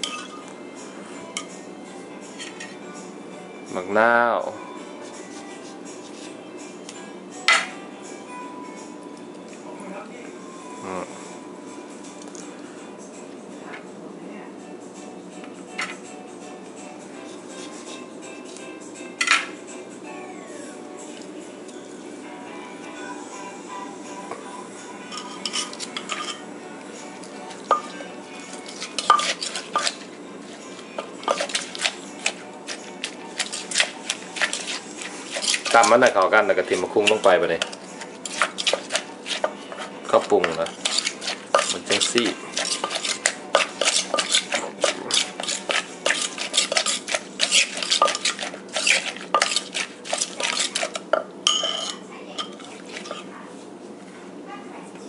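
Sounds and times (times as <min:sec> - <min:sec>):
metal spoon scraping and clinking: 0:00.0 - 0:00.5, 0:02.3 - 0:02.8, 0:25.1 - 0:26.5, 0:27.6 - 0:53.3
wooden pestle pounding in mortar: 0:37.0 - 0:51.0.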